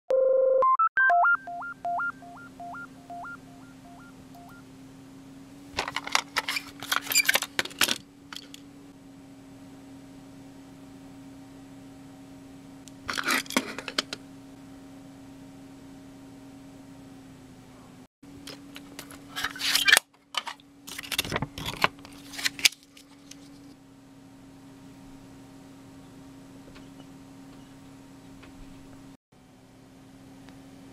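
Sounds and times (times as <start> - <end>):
electronic jingle of beeps: 0.1 - 4.6
steady low hum: 1.5 - 19.5
cassette tape clattering on table: 5.8 - 8.6.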